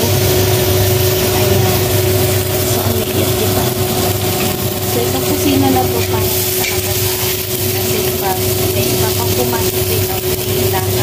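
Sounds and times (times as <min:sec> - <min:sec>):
steady machine hum: 0:00.0 - 0:11.0.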